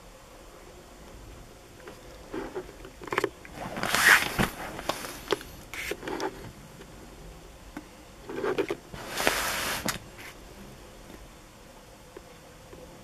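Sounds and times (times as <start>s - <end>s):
plastic wrapping crinkling: 3.5s - 5.5s.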